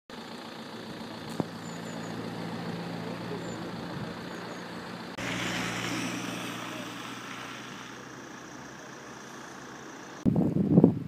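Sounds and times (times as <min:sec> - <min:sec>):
vehicle engine idling: 0:00.1 - 0:10.3
hiss: 0:05.2 - 0:10.2.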